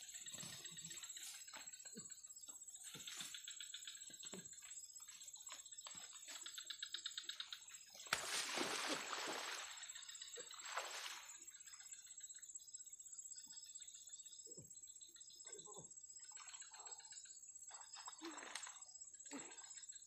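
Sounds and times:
insects whining and trilling: 0.0 - 20.0
water splashing: 7.9 - 11.5.

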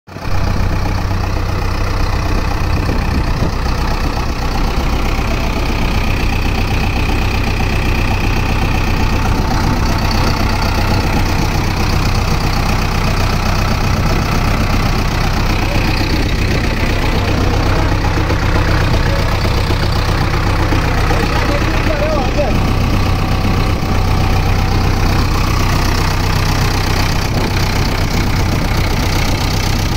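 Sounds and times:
diesel engine idling: 0.1 - 29.9.

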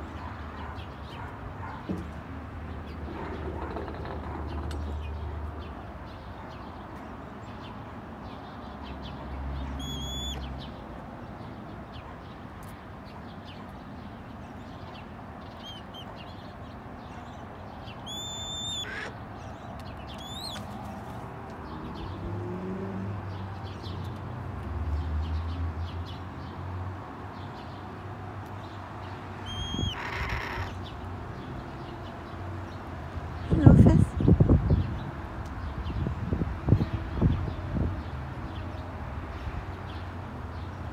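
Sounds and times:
hawk whistled calls: 9.8 - 10.5, 18.0 - 19.1, 29.4 - 30.7.

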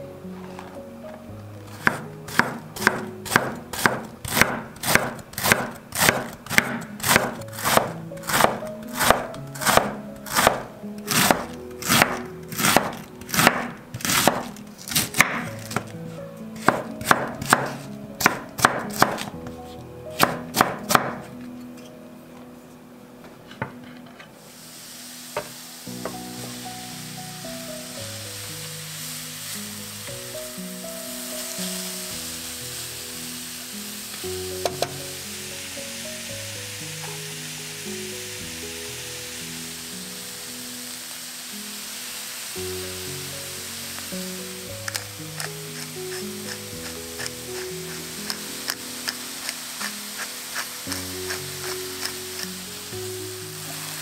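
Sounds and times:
food sizzling in a hot pan: 1.6 - 19.4, 24.4 - 54.0
knife chopping on wooden board: 1.8 - 15.9, 16.6 - 19.6, 20.2 - 21.3.

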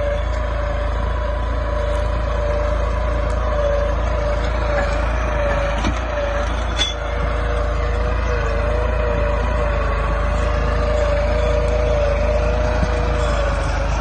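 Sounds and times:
tractor diesel engine rumbling: 0.0 - 14.0.

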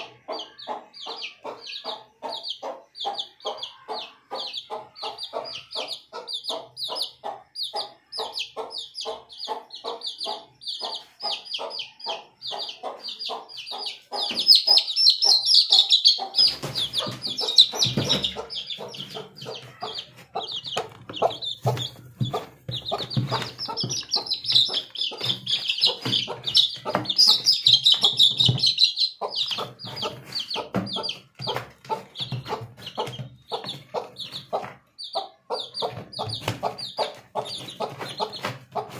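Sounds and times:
chicks peeping: 0.0 - 38.9
hen clucking: 0.0 - 38.9.

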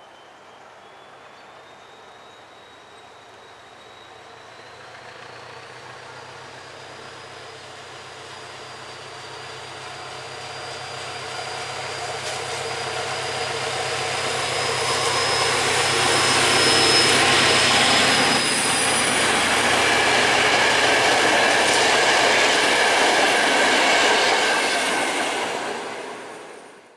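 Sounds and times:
diesel locomotive rumbling: 0.5 - 26.9
thin high whine: 10.4 - 26.7.

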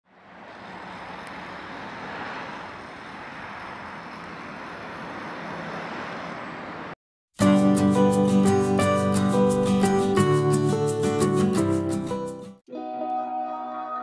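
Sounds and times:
road traffic hiss and rumble: 0.0 - 7.0.

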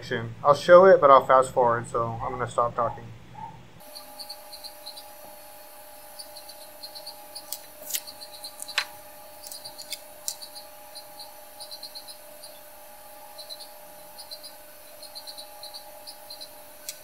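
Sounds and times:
steady hum: 0.0 - 17.0
pointed tool scratching circuit board: 6.2 - 12.6
sharp clicks: 7.4 - 10.5.

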